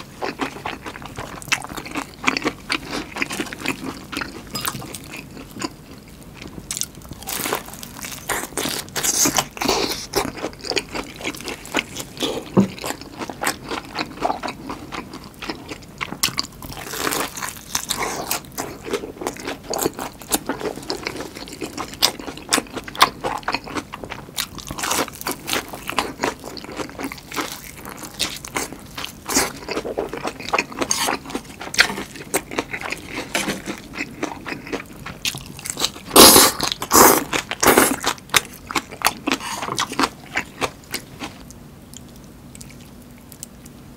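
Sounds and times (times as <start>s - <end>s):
wet chewing: 0.0s - 43.5s.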